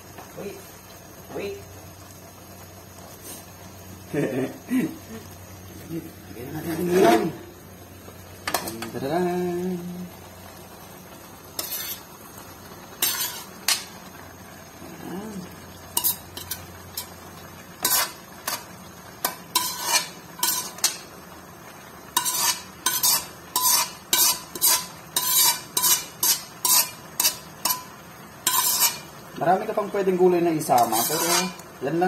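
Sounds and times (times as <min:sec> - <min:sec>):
metal scraping and tapping: 0:13.0 - 0:13.9, 0:22.2 - 0:27.9, 0:28.5 - 0:29.0.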